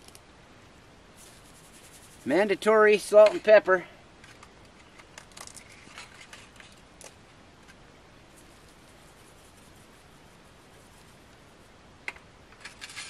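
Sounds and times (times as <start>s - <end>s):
foil pouch rustling: 1.2s - 2.3s.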